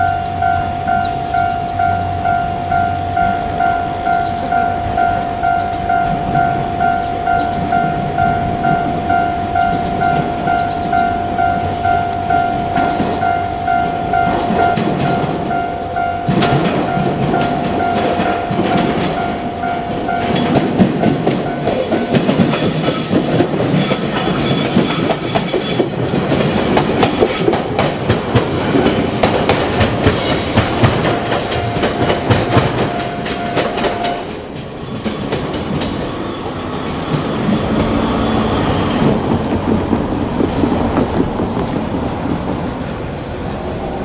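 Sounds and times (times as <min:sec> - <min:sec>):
level-crossing warning bell: 0:00.0 - 0:27.7, 0:30.0 - 0:34.6
train whine and squeal: 0:00.0 - 0:44.0
train wheels clattering over rail joints: 0:16.2 - 0:43.1.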